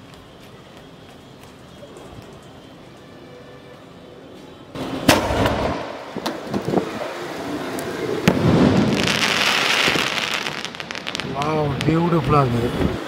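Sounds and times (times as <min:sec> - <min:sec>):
firework shell bang: 0:04.8 - 0:06.6
mortar launch crack: 0:05.0 - 0:06.4.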